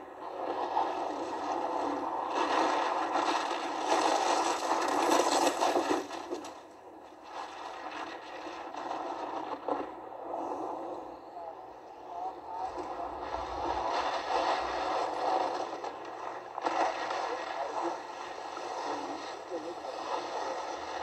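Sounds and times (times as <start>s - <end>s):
ski edges scraping on icy snow: 0.3s - 6.6s, 12.7s - 21.0s.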